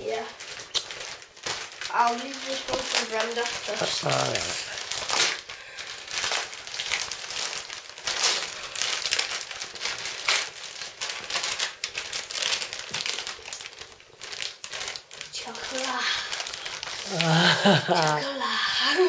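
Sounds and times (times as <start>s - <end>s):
wrapping paper crinkling and tearing: 0.1s - 19.0s.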